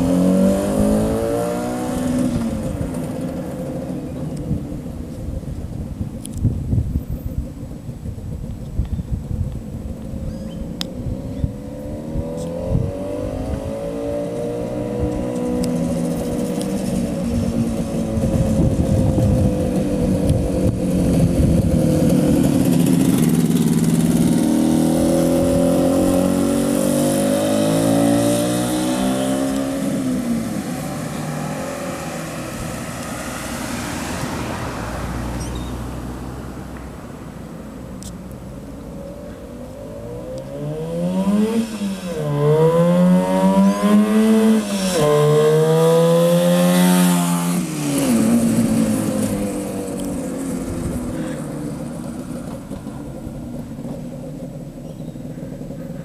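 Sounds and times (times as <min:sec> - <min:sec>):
motorcycle engine passing by: 0:00.0 - 0:04.3, 0:11.0 - 0:36.7, 0:39.9 - 0:53.8.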